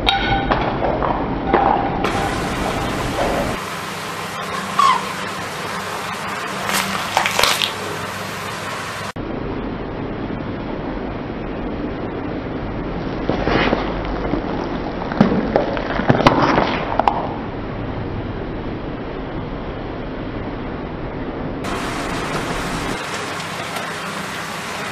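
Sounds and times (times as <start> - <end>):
peppers crackling under tyre: 1.0 - 9.2, 21.6 - 24.9
low rumble: 9.0 - 16.2.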